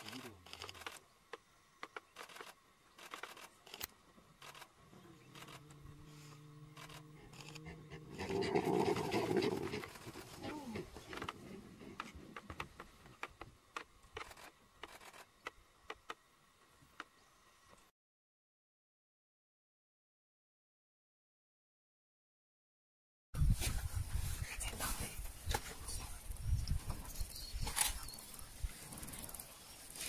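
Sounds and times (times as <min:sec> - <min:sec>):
animal growling and calling: 0:04.9 - 0:12.6.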